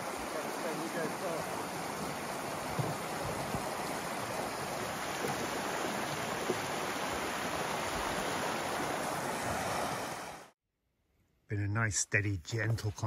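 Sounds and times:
stream running over rocks: 0.0 - 10.6.

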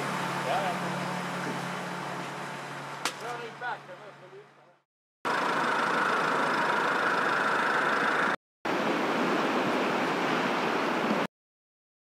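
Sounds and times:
engine running steadily: 0.0 - 8.4.

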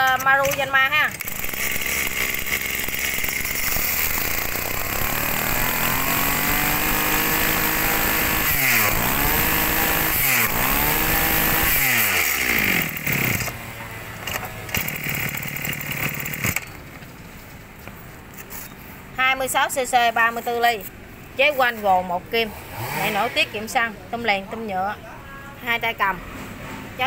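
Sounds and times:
brush cutter engine revving: 0.4 - 16.6, 22.4 - 23.5.

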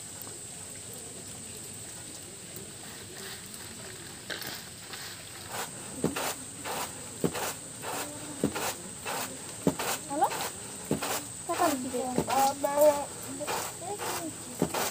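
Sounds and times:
grain swishing on a tray: 4.9 - 14.9.

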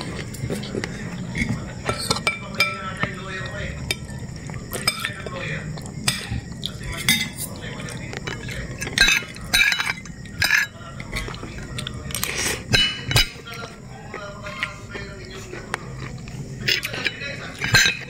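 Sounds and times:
cutlery clinking on ceramic plates: 1.3 - 3.2, 6.0 - 7.5, 8.2 - 11.4, 12.2 - 15.1, 16.6 - 18.0.

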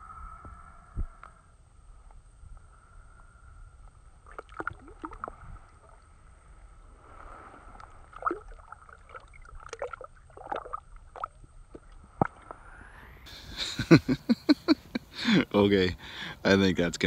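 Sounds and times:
water splashing: 4.2 - 6.2, 7.1 - 12.6.

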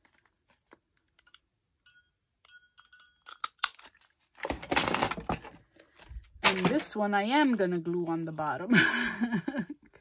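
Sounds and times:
paper rustling: 0.0 - 1.1, 7.4 - 8.7
faint ringing clink: 1.2 - 3.4.

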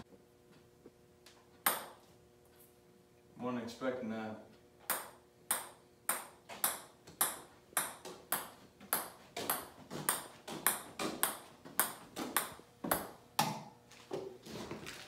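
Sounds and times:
ping pong ball bouncing on club: 1.6 - 2.0, 4.8 - 13.7.

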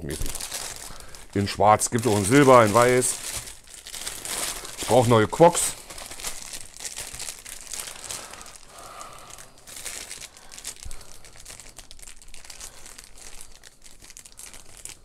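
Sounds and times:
plastic packaging crinkling: 0.0 - 15.0.

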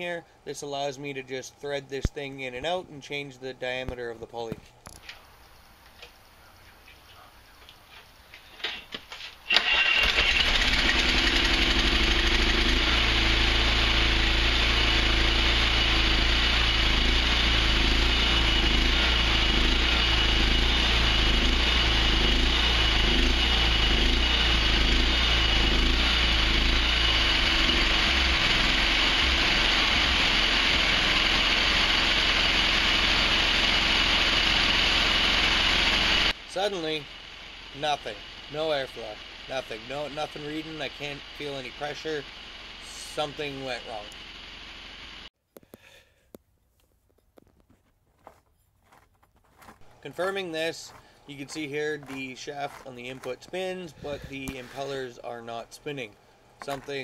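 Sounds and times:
thin steady whine: 0.0 - 45.3
engine starting and running: 8.6 - 45.3, 49.8 - 57.0.

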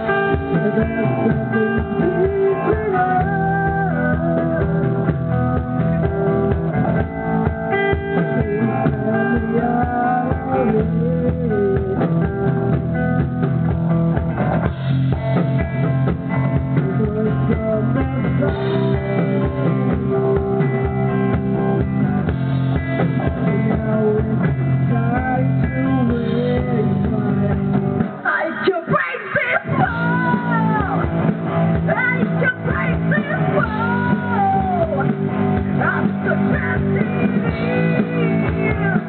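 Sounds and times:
live rock band playing: 0.0 - 39.0
overdriven electric guitar: 0.0 - 39.0.

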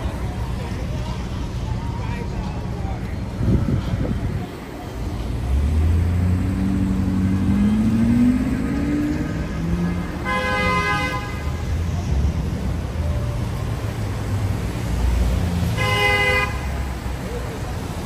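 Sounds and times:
street traffic rumble: 0.0 - 18.0
vehicle horn honking: 10.2 - 11.7, 15.8 - 16.8.

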